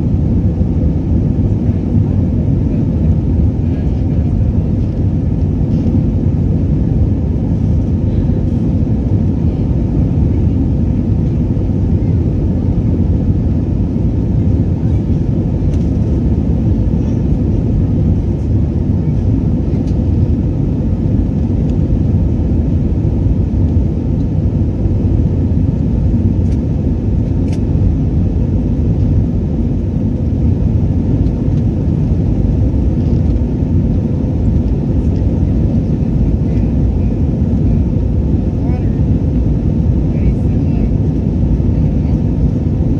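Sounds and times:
airplane cabin jet engine noise: 0:00.0 - 0:42.9.

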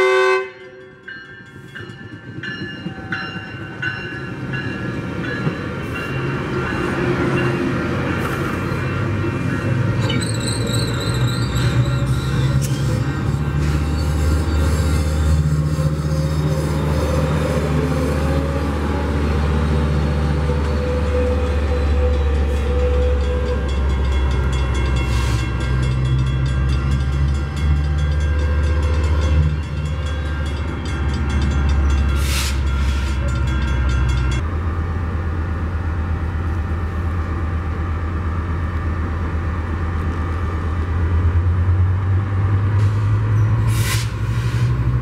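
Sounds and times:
diesel locomotive engine drone: 0:00.0 - 0:45.0
brief hiss: 0:42.9 - 0:44.8.

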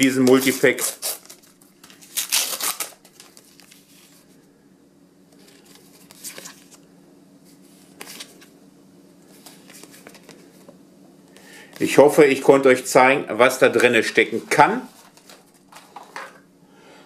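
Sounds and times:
paper rustling: 0:00.1 - 0:04.3, 0:05.4 - 0:06.8, 0:09.3 - 0:10.7, 0:14.7 - 0:16.4
paper packet tearing open: 0:00.2 - 0:03.8.

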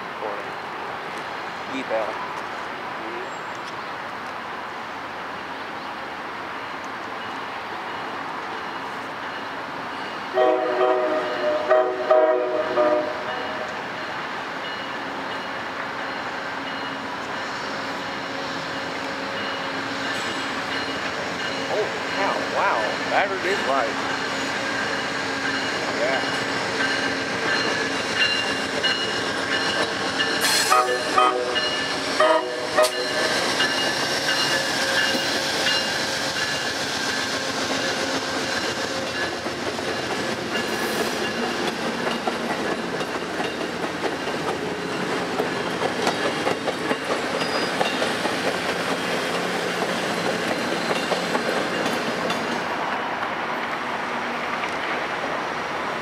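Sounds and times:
train horn: 0:10.3 - 0:13.7, 0:30.4 - 0:33.2
train wheels clattering over rail joints: 0:32.8 - 0:53.8.

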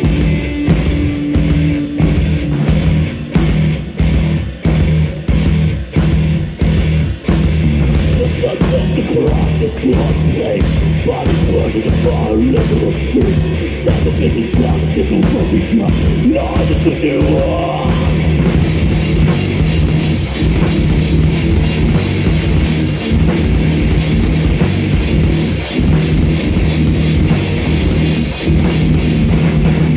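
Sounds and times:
heavy metal band playing live: 0:00.0 - 0:29.9
person singing: 0:08.1 - 0:18.4.

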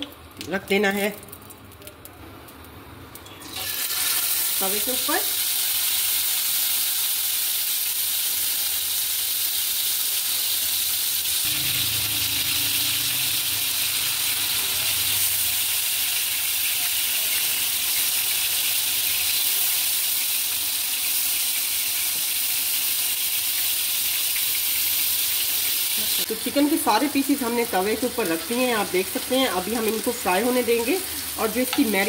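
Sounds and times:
chicken sizzling on griddle: 0:03.6 - 0:32.0.

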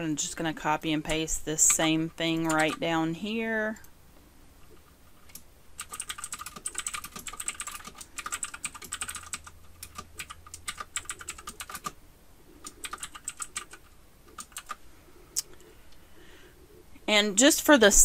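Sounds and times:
computer keyboard typing: 0:01.1 - 0:03.0, 0:04.6 - 0:12.0, 0:12.6 - 0:14.8.

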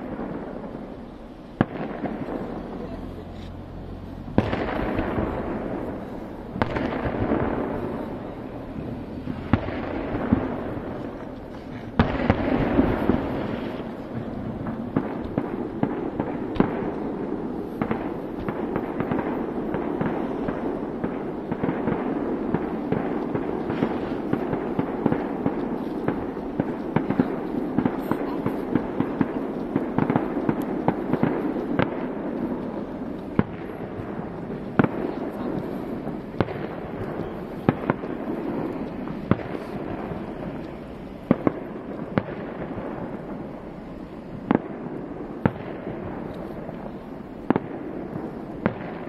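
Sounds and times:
fireworks bangs: 0:00.0 - 0:49.0
fireworks crackling: 0:00.0 - 0:49.0.

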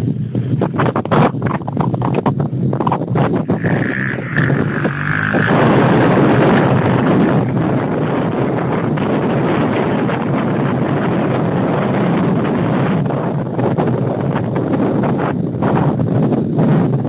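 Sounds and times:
quad bike engine pulling away: 0:00.0 - 0:13.3
wind buffeting microphone: 0:00.0 - 0:17.0.

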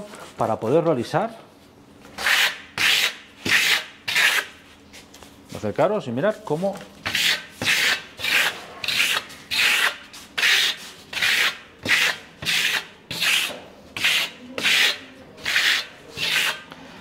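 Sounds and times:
steel trowel scraping render: 0:02.2 - 0:04.5, 0:07.0 - 0:16.7.

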